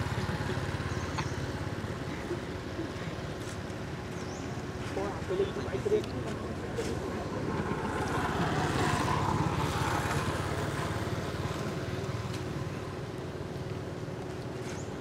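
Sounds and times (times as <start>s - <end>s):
motor vehicle passing: 0.0s - 14.8s.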